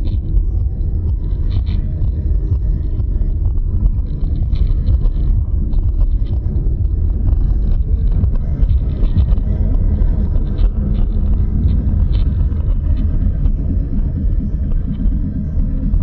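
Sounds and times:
car engine and tyre noise: 0.0s - 16.0s
faint ticks and rattles: 0.0s - 16.0s.

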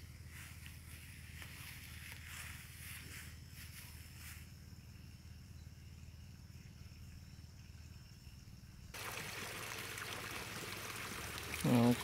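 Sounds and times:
high-pitched insect call: 0.0s - 12.0s
hose spraying water on plants: 9.0s - 12.0s.

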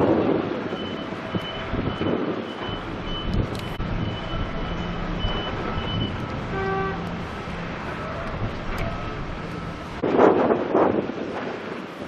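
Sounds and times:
low machinery rumble: 0.0s - 12.0s
reversing alarm beeping: 0.6s - 7.1s
low horn-like tone: 6.5s - 7.2s.

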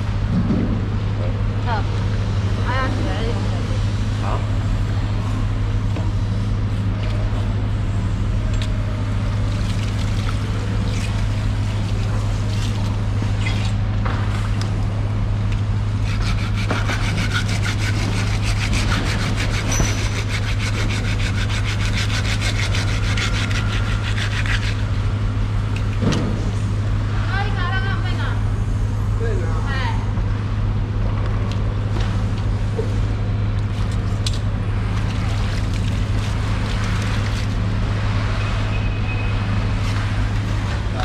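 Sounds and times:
low machine hum: 0.0s - 41.0s
knife sawing through fish skin: 15.9s - 25.1s.

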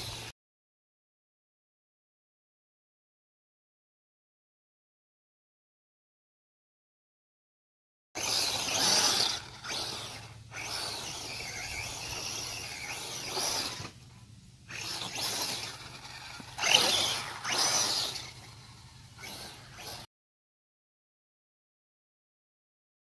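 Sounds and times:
electric motor whining: 8.2s - 20.1s.

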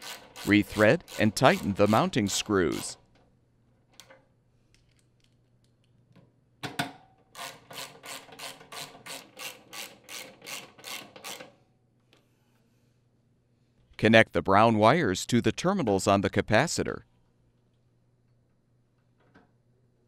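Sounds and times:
ratchet wrench ratcheting: 0.0s - 2.0s, 7.4s - 11.5s.

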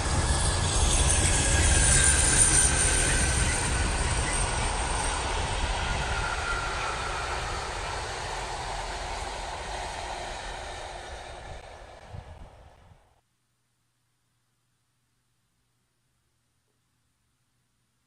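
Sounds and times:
passenger train rumble: 0.0s - 13.1s.

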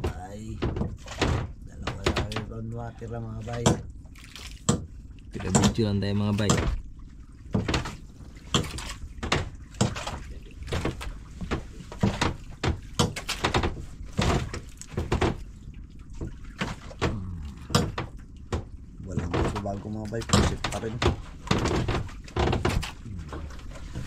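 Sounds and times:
knocks and clicks of fishing line: 0.0s - 2.6s, 3.4s - 6.8s, 7.5s - 15.5s, 16.1s - 24.0s
water splashing: 0.0s - 24.0s
low rumble: 13.8s - 21.5s, 22.1s - 24.0s.

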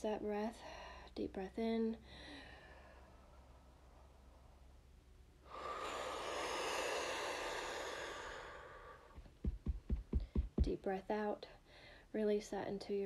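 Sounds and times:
woman breathing out: 5.4s - 9.2s
low thumps: 9.1s - 11.0s.

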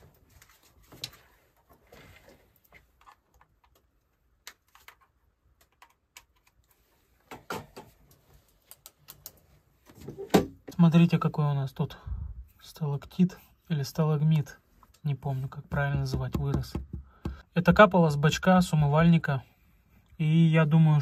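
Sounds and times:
clicks of hands handling wiring: 2.6s - 9.4s.

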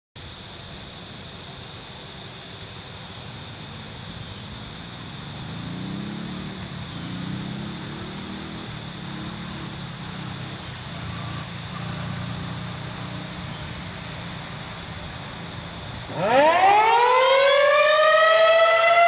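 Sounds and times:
insects trilling: 0.2s - 19.0s.

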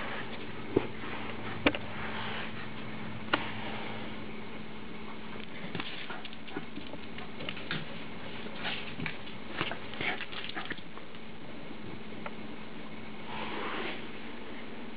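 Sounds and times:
dog claws clicking on tile floor: 5.4s - 7.9s, 8.9s - 11.2s.

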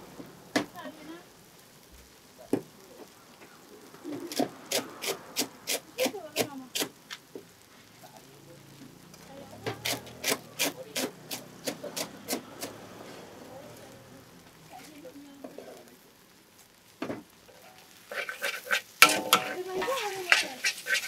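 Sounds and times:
utensil striking quickly: 19.0s - 21.0s.

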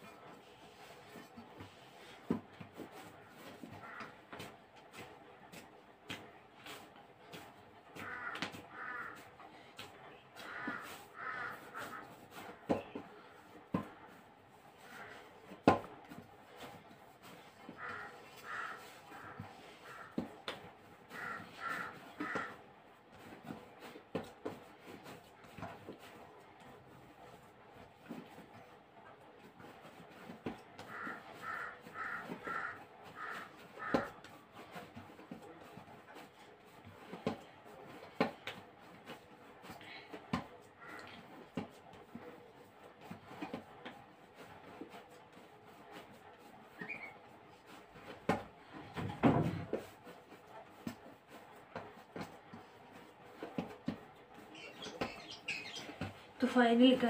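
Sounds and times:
dough squelching being kneaded: 0.0s - 57.0s
crow cawing: 3.8s - 4.2s, 8.0s - 9.2s, 10.4s - 12.1s, 17.8s - 20.2s, 21.1s - 22.6s, 30.8s - 34.2s, 40.8s - 41.2s
bird calling: 54.5s - 56.1s.

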